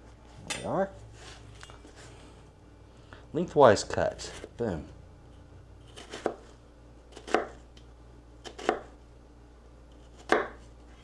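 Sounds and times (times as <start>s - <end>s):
knife cutting onion on board: 5.8s - 7.7s, 8.4s - 9.0s, 9.9s - 11.0s.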